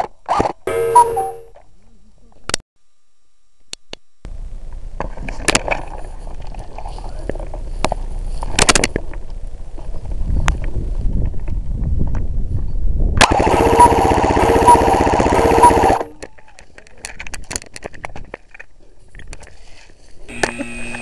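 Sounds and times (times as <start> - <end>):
airsoft gun full-auto burst: 13.2 - 16.1.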